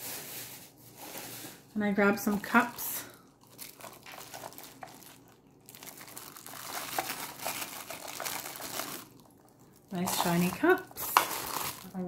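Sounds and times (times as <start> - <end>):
plastic wrapping crinkling: 0.0 - 12.0.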